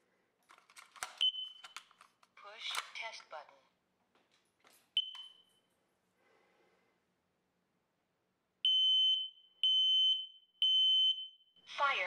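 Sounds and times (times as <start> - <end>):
handling clicks: 0.4 - 3.0
high-pitched alarm beeps: 5.0 - 5.5, 8.7 - 11.5
alarm chirp: 5.0 - 5.6, 8.6 - 11.5.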